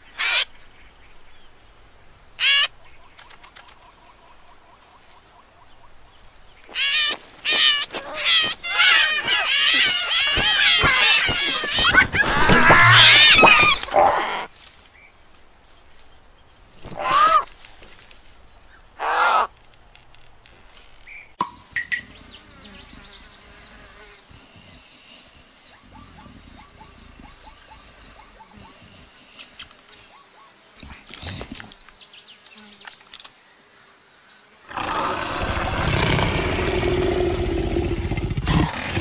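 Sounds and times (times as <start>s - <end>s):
bird chicks squawking: 6.7s - 13.9s
short caws: 19.0s - 19.5s.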